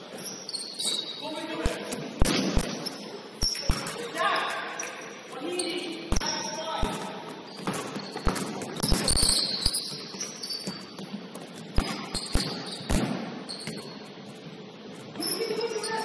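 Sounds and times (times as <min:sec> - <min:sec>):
shoe squeaks: 0:00.0 - 0:01.6, 0:02.6 - 0:06.8, 0:07.4 - 0:14.4, 0:15.1 - 0:16.0
basketball bouncing on gym floor: 0:01.6 - 0:04.1, 0:06.1 - 0:14.0.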